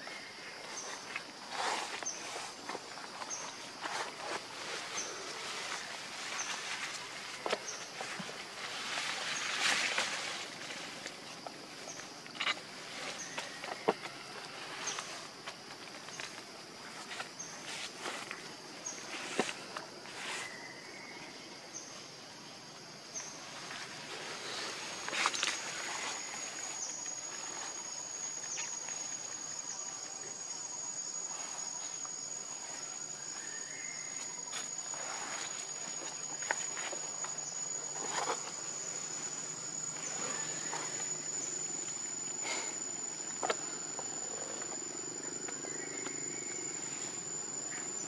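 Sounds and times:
leaves rustling: 0.0 - 21.0, 22.6 - 48.0
high-pitched insect drone: 16.1 - 48.0.

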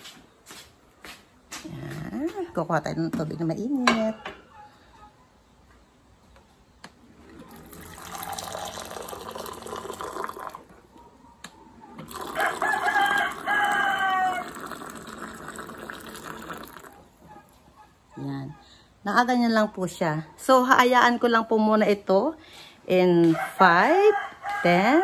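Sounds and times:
hot water pouring into mug: 7.4 - 10.8, 12.0 - 13.5, 14.2 - 17.0
rooster crowing: 12.1 - 15.0, 23.2 - 25.0.

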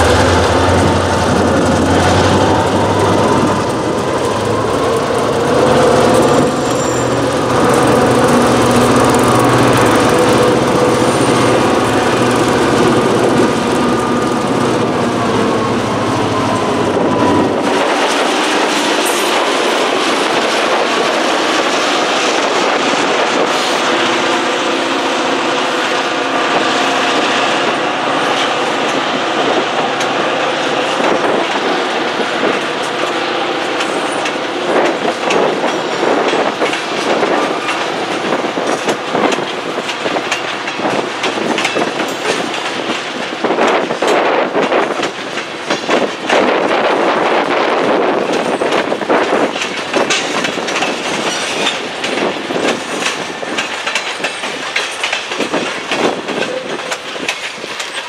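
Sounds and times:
clickety-clack over rail joints: 0.0 - 58.0
locomotive engine rumble: 0.0 - 58.0
wheel-on-rail noise: 0.0 - 58.0
thin wheel squeal: 6.6 - 7.2.

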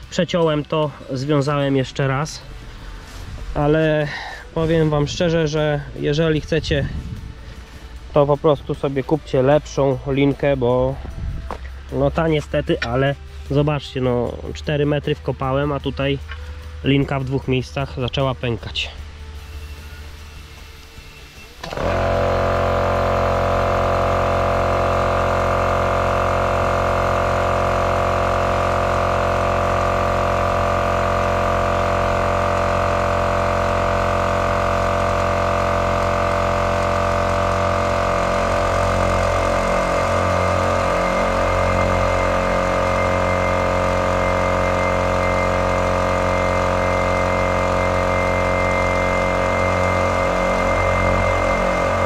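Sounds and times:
air compressor droning: 0.0 - 52.0.

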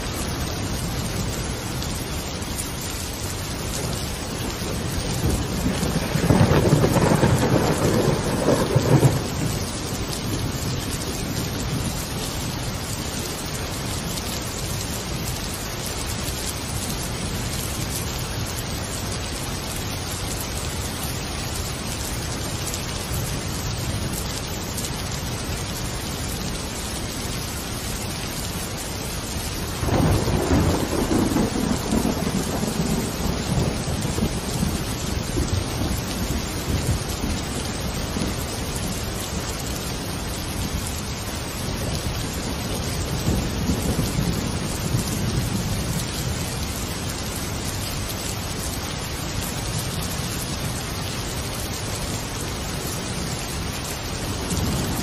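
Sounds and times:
steady rain: 0.0 - 55.0
thunder rumbling: 3.7 - 12.2, 29.5 - 40.3, 41.2 - 47.0.

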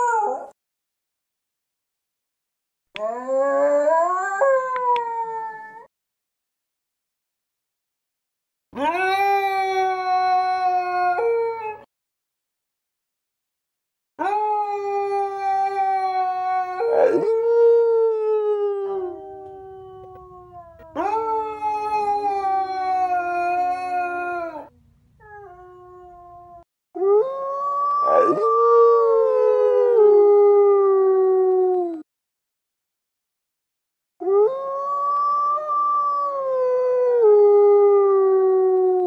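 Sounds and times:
dogs howling: 14.2 - 26.1, 27.0 - 32.0.

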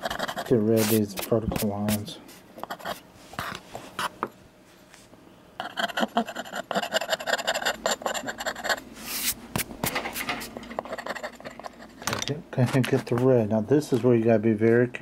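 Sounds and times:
metal blade scraping paper: 0.0 - 2.0.

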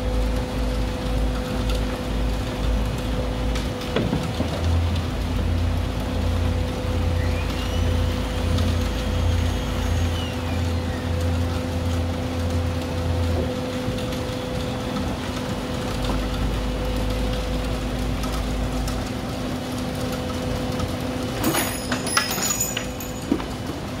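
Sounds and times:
concrete vibrator humming: 0.0 - 24.0
knocks and rattles: 3.5 - 5.1, 21.3 - 23.9.

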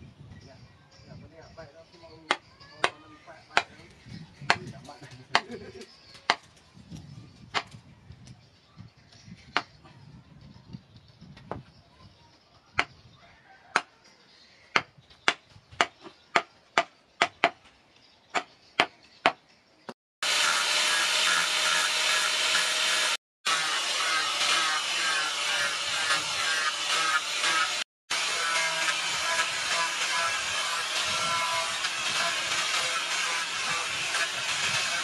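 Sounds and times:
angle grinder grinding metal: 20.2 - 35.0.

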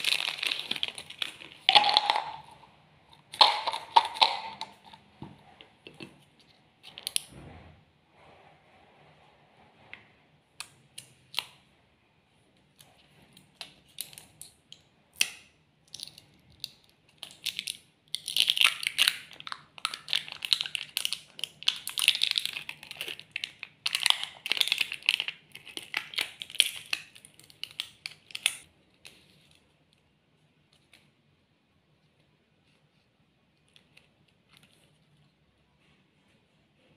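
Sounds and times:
plastic seal crinkling and tearing: 0.0 - 2.6, 17.2 - 29.6.

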